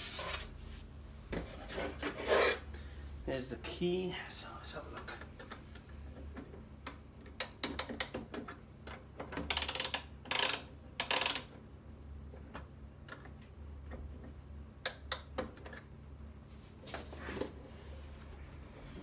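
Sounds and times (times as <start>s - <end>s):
clock winding clicks: 9.5s - 11.5s.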